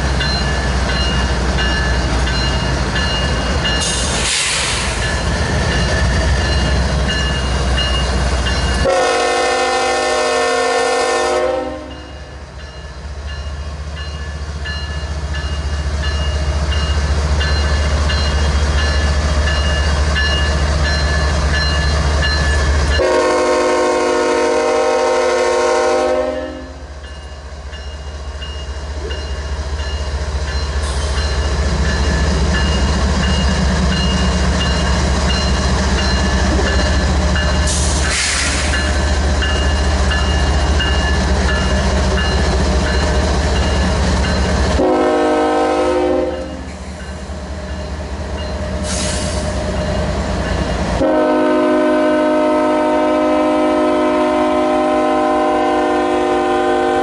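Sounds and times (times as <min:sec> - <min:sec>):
train horn blasts: 0:08.8 - 0:12.1, 0:23.0 - 0:26.8, 0:44.7 - 0:46.7, 0:51.0 - 0:57.0.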